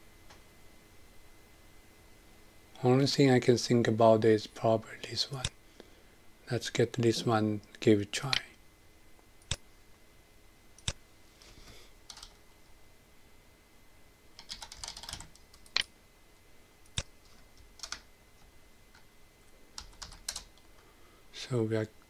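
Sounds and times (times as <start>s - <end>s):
computer keyboard typing: 12.1s - 12.4s, 14.4s - 15.9s, 17.0s - 18.1s, 19.7s - 20.6s.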